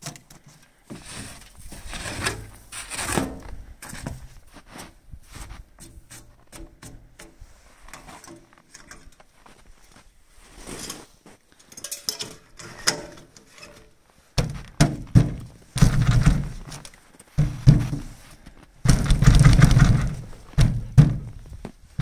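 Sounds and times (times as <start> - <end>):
metallic knocks and clunks: 11.7 - 16.8, 17.4 - 18.2, 18.9 - 21.6
heavy thumps: 14.4 - 16.8, 17.4 - 22.0.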